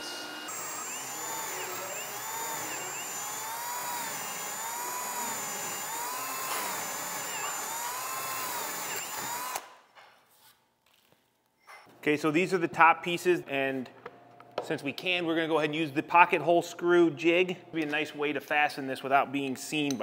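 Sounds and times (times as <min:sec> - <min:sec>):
cordless drill boring wood: 0:00.5 - 0:09.7.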